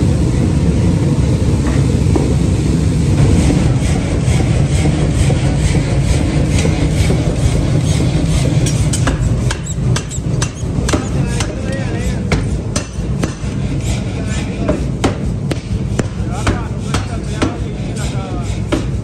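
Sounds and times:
machinery low rumble: 0.0 - 19.0
metal-on-metal knocks: 8.6 - 13.5.

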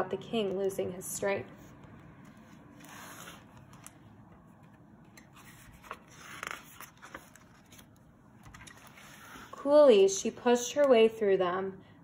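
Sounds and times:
book page turning: 1.6 - 9.6.

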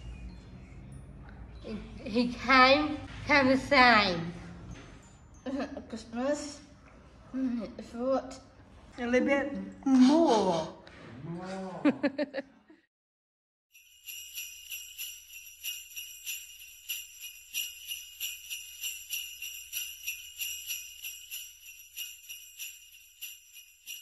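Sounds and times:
jingle bells shaken: 13.7 - 24.0.

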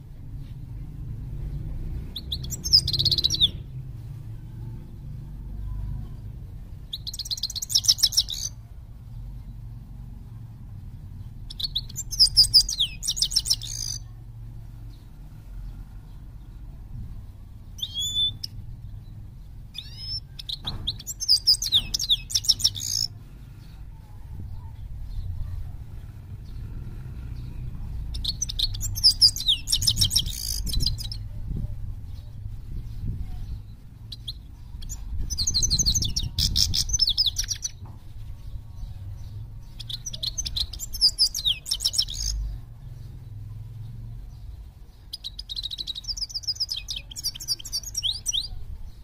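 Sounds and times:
finch singing high chatter: 2.2 - 3.7, 6.8 - 8.6, 11.2 - 14.1, 17.7 - 23.8, 24.4 - 42.6, 44.3 - 49.0
low steady rumble: 14.0 - 20.6, 23.1 - 40.8.

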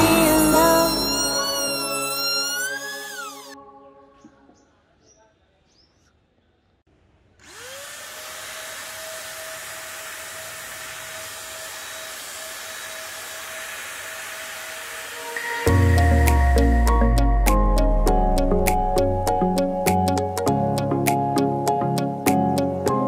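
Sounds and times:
heat gun fan whining: 7.4 - 15.7.

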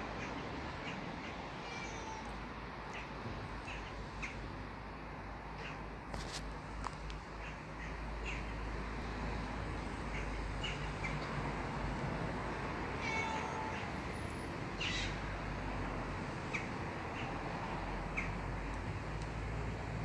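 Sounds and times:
cat meowing: 1.6 - 3.1, 13.0 - 13.9, 14.8 - 15.2.

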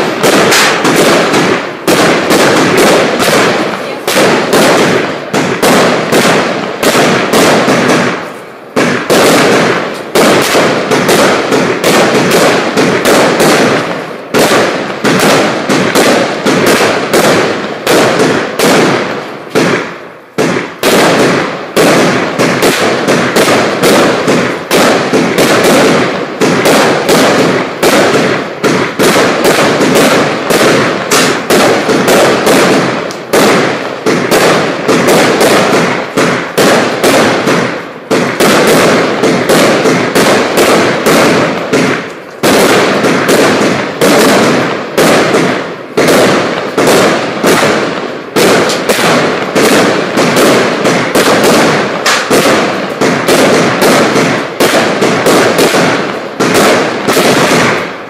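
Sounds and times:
firework cake sharp bangs: 0.0 - 58.0.

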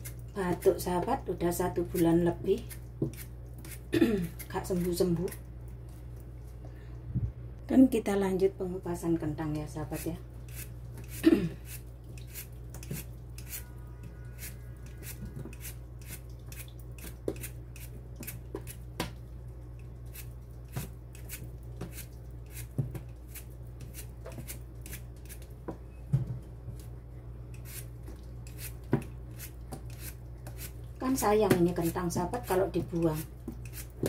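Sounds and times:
steady low hum: 0.0 - 34.0
peeler scraping potato skin: 9.9 - 13.7, 14.4 - 18.8, 20.1 - 25.5, 27.5 - 34.0.

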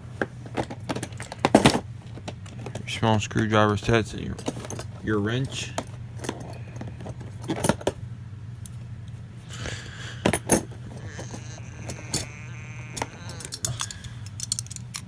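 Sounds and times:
steady low hum: 0.0 - 15.0
metal tools clattering on plastic tray: 3.8 - 8.0.

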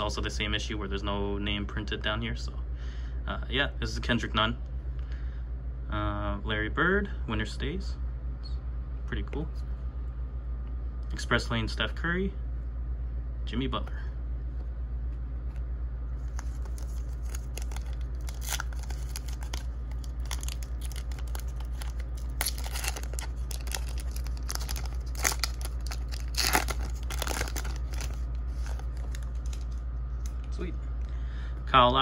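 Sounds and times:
steady low hum: 0.0 - 32.0
foil wrapper crinkling and tearing: 16.2 - 29.8.

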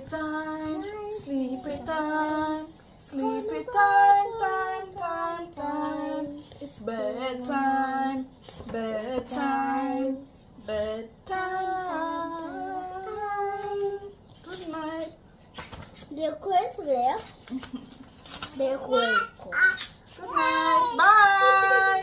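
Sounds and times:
woman and child singing: 0.0 - 15.2, 20.2 - 22.0.

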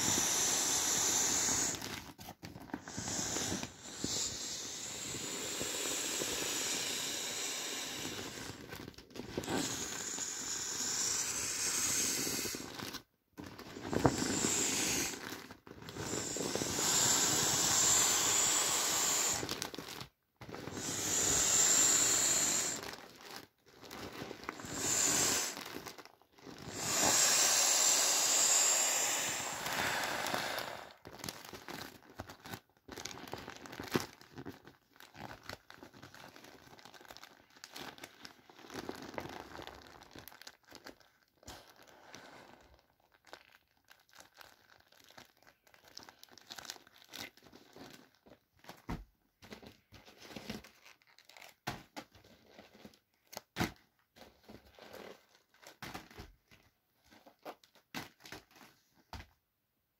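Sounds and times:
air hissing out of valve: 0.0 - 1.9, 2.8 - 8.6, 9.4 - 12.7, 13.8 - 15.2, 15.9 - 19.5, 20.7 - 22.8, 24.6 - 25.6, 26.6 - 31.0.

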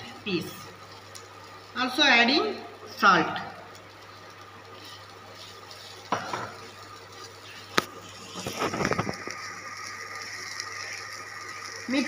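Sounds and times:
spatula stirring vegetables in pan: 3.6 - 12.0
knock against pan: 6.1 - 6.6.

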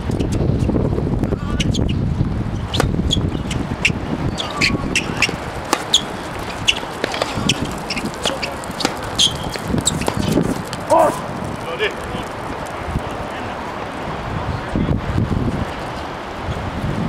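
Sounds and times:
ball bouncing on hard court: 2.7 - 10.9
tennis ball struck by rackets: 2.7 - 10.9.

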